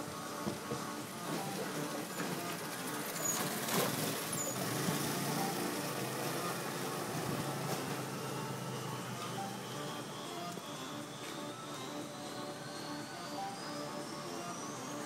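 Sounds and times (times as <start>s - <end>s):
scooter engine passing: 2.4s - 9.9s.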